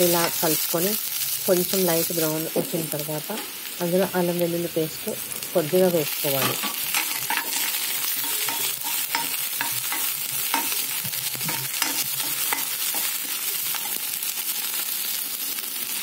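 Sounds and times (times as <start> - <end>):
food sizzling in hot oil: 0.0 - 16.0
ladle scraping pan: 6.3 - 14.0.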